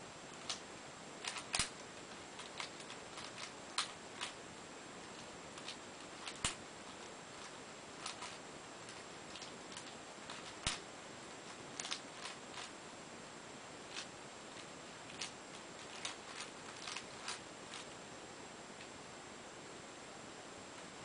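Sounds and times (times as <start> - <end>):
puzzle cube layers clicking: 1.2 - 4.4, 5.1 - 10.9, 11.5 - 12.7, 13.9 - 18.0.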